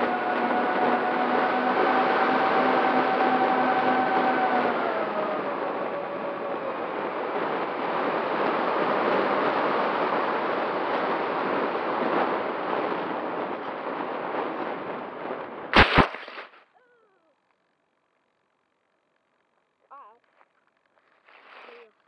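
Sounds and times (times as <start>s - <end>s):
quadcopter motors rushing: 0.0s - 15.4s.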